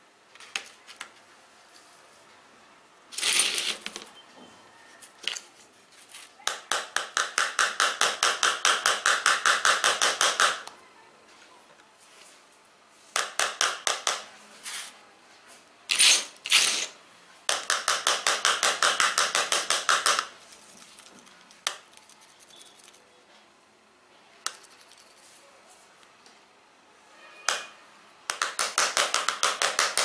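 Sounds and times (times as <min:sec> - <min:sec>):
screwdriver scraping glass screen: 0:03.1 - 0:04.0, 0:15.9 - 0:17.0.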